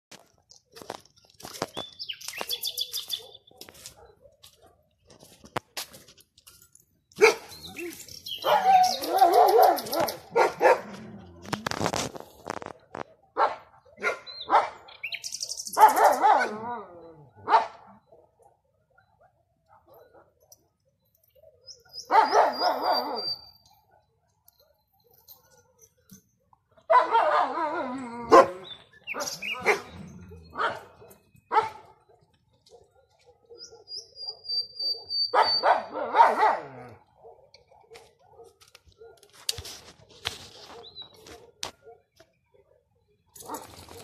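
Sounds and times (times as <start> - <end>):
dog barking: 2.6 - 5.0, 7.2 - 11.0, 13.0 - 14.9, 15.7 - 16.8, 17.4 - 20.6, 21.4 - 24.8, 26.8 - 39.8, 40.6 - 44.0
nightingale whistling: 21.9 - 23.6.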